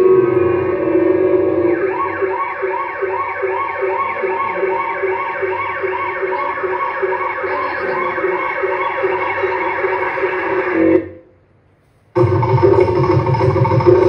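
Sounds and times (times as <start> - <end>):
dance music: 0.0 - 11.1, 12.2 - 14.0
siren-like electronic sound: 0.0 - 11.2.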